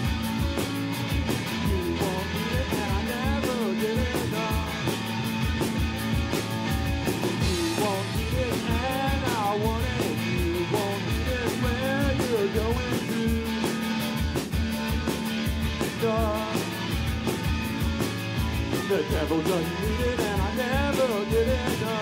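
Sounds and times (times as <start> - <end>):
drum beat: 0.0 - 22.0
electric guitar: 0.0 - 22.0.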